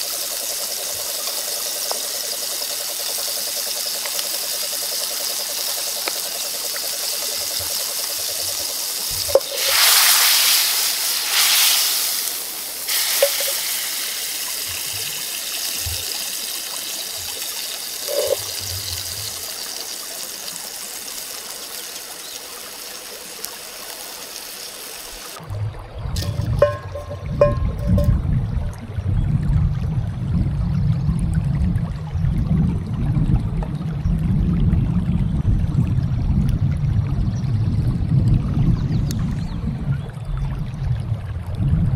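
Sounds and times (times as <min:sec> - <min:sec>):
sauce bubbling in a skillet: 0:00.0 - 0:25.4.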